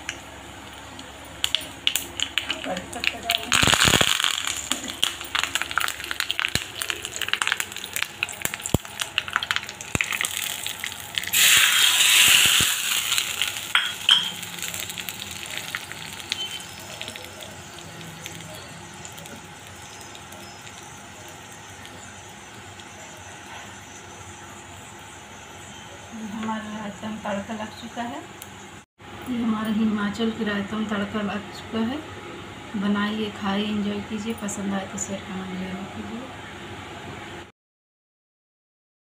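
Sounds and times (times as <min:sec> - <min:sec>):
seeds crackling in hot oil: 0:00.0 - 0:28.6
loud sizzling hiss: 0:01.5 - 0:23.3.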